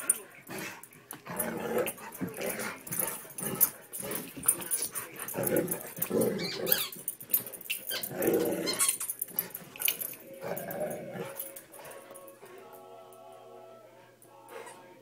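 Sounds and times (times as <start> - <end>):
dogs growling in play: 0.0 - 12.8
dog whining: 6.2 - 7.1, 7.7 - 9.2.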